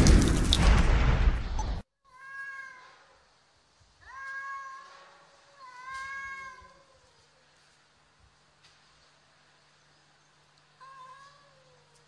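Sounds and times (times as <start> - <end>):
cats yowling: 4.0 - 7.4, 10.8 - 12.0.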